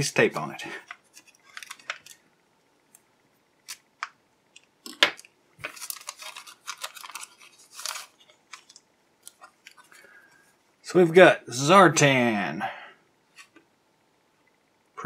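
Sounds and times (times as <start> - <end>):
plastic bag crinkling: 0.8 - 2.3, 3.6 - 10.2.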